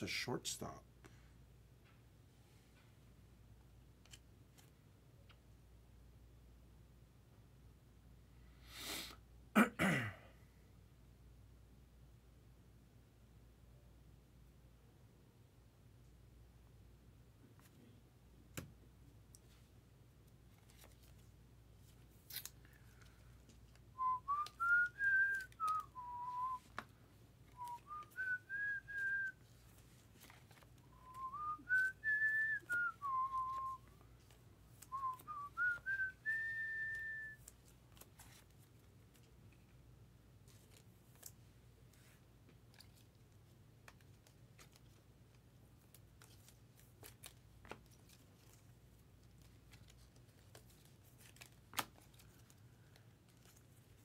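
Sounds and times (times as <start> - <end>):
trading cards rustling: 20.4 - 39.6, 40.4 - 54.0
person whistling a tune: 24.0 - 26.7, 27.6 - 29.4, 30.9 - 33.9, 34.9 - 37.4.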